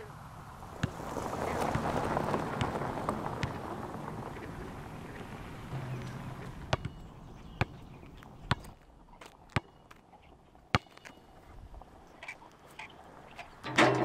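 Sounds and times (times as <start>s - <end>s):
car tyres rolling on gravel: 0.1s - 10.4s.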